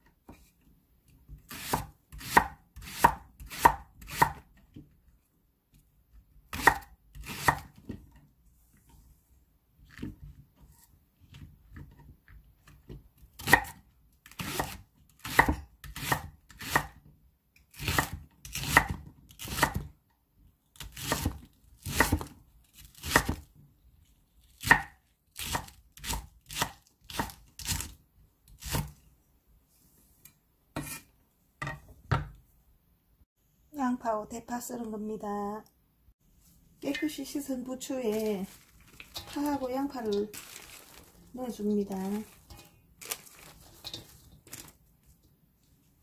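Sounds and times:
knife slicing onion on wooden board: 0:01.3 - 0:04.8, 0:06.5 - 0:08.1, 0:12.6 - 0:17.0, 0:17.7 - 0:19.9, 0:20.8 - 0:23.5, 0:24.5 - 0:29.0, 0:30.2 - 0:31.1.

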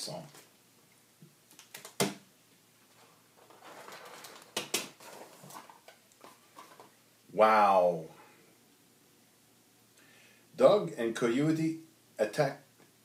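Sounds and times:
packaging rustling: 0:02.9 - 0:07.0.

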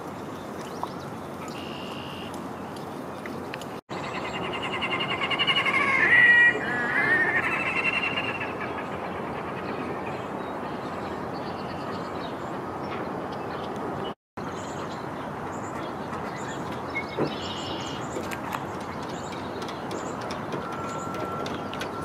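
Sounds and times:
grebe wailing call: 0:04.5 - 0:08.6.

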